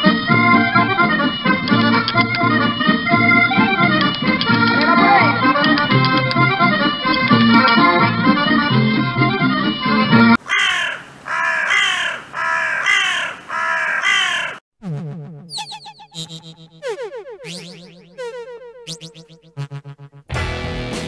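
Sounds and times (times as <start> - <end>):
accordion music: 0.0 - 10.4
crow cawing: 10.4 - 14.6.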